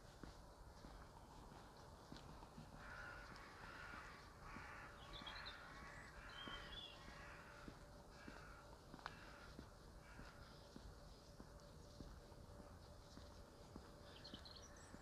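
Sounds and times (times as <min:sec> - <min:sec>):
crows cawing: 0:02.4 - 0:10.8.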